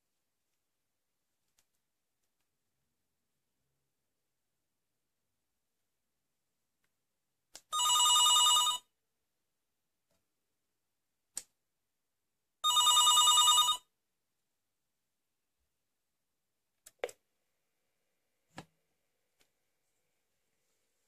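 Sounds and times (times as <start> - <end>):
telephone ringing: 7.7 - 8.9, 12.6 - 13.9.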